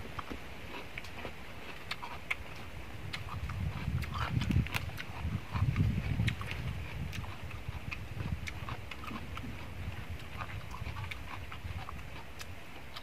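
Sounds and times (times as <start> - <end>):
man chewing fish: 0.0 - 13.0
lip smacks: 1.8 - 9.2.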